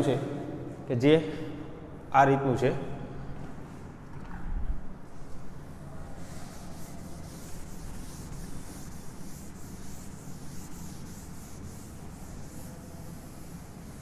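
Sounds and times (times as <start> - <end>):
steady low hum: 0.0 - 14.0
scratchy writing strokes: 5.5 - 14.0.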